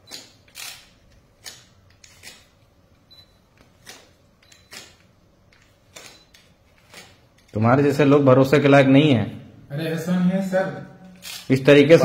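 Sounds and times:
scissors cutting cast bandage: 0:00.1 - 0:02.6.

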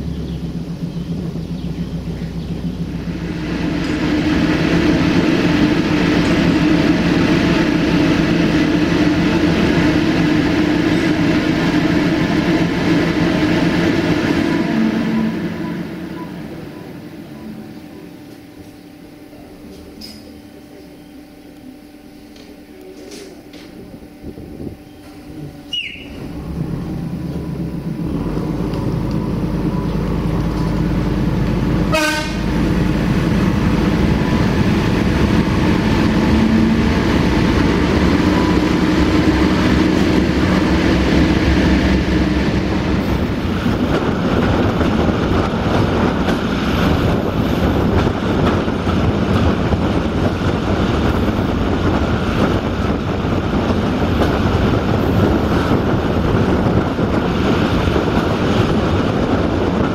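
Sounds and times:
diesel railcar engine rumble: 0:00.0 - 0:59.9
short horn toot: 0:31.9 - 0:32.5.

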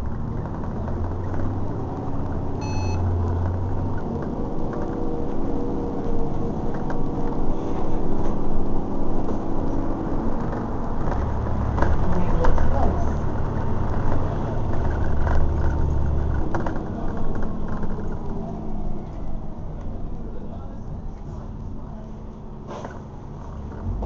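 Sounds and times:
bus engine and road noise: 0:00.0 - 0:24.0
electronic beep: 0:02.6 - 0:03.0.

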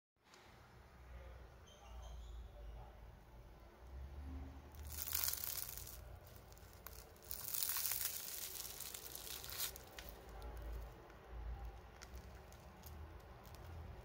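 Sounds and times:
pastry crust crackling: 0:04.7 - 0:14.0.

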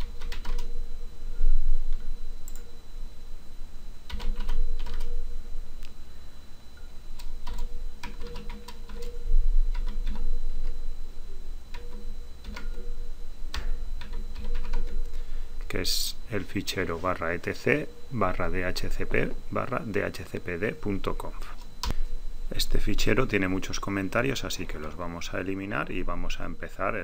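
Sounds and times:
keyboard keys clicking: 0:00.0 - 0:00.7, 0:04.1 - 0:05.1, 0:07.2 - 0:09.1, 0:09.7 - 0:10.2, 0:11.7 - 0:12.8, 0:13.5 - 0:15.0.

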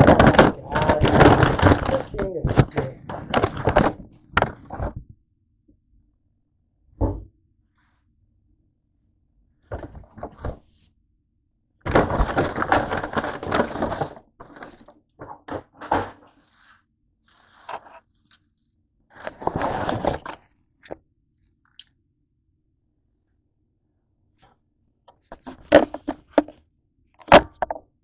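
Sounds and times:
paper bag and wrappers rustling: 0:00.0 - 0:05.0, 0:11.9 - 0:16.7, 0:19.1 - 0:20.5.

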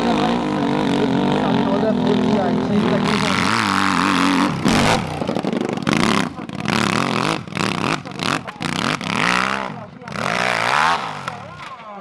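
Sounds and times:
motorcycle engine revving hard: 0:00.0 - 0:11.7.

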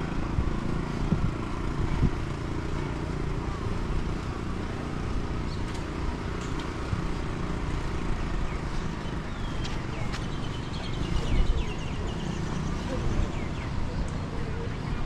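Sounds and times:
birds calling: 0:05.4 - 0:15.0.

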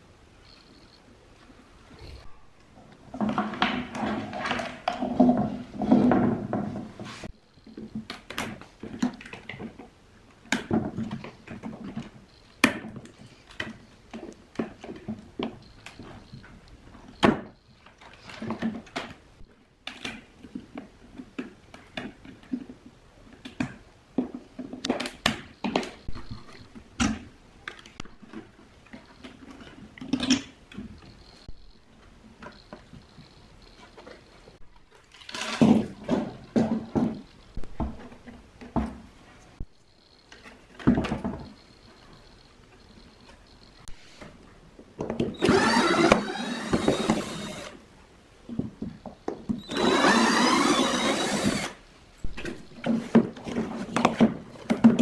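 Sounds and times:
scraping and rustling: 0:02.9 - 0:08.0.

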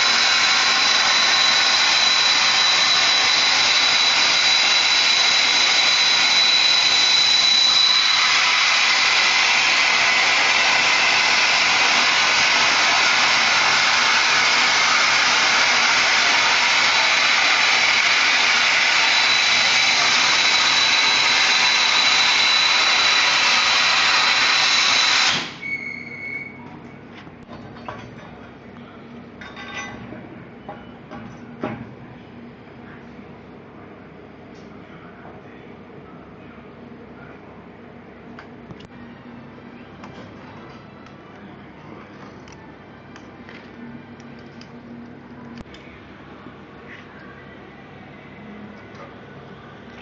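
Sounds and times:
thin high whistle: 0:00.3 - 0:08.6, 0:19.2 - 0:26.7.

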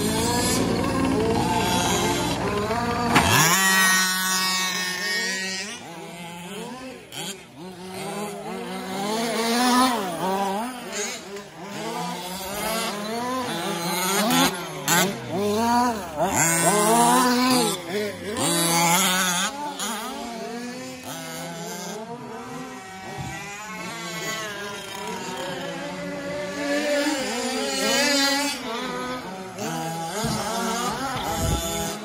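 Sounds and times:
rc truck engines revving: 0:00.0 - 0:32.0.

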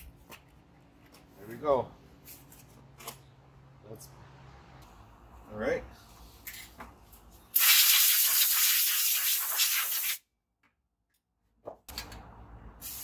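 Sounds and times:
aerosol spray can hissing: 0:07.6 - 0:10.2.

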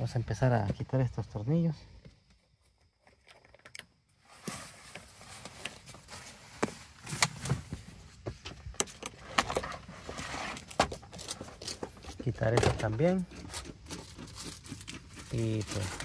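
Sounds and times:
rustling: 0:04.2 - 0:08.4, 0:09.2 - 0:16.0.

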